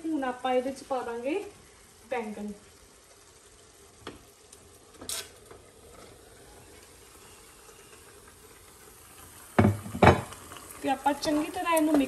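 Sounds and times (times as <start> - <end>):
faint sizzle from a pan: 0.0 - 12.0
small taps on a plate: 9.6 - 10.3.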